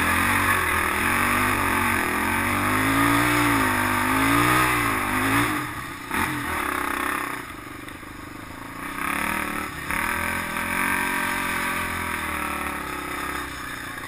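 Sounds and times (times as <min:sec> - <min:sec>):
quad engine running hard: 0:00.0 - 0:14.0.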